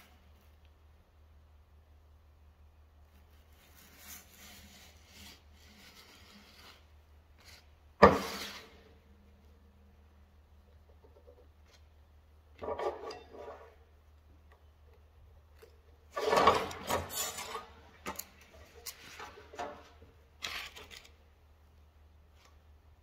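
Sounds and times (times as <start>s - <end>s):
rubbing and scraping on workbench: 3.2s - 8.8s.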